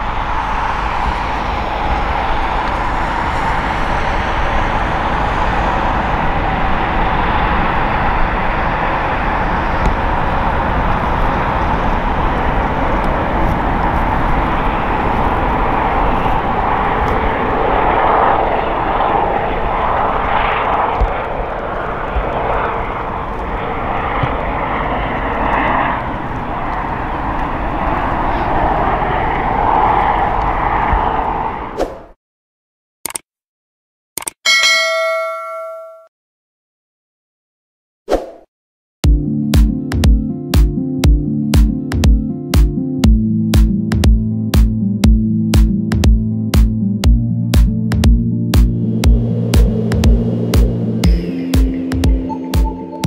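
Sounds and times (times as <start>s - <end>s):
helicopter turbine and rotor whine: 0.0s - 31.8s, 48.0s - 53.0s.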